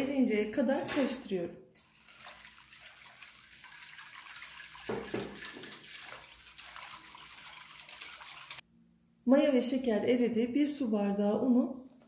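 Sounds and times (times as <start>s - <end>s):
whisk swishing water in bowl: 1.8s - 8.6s.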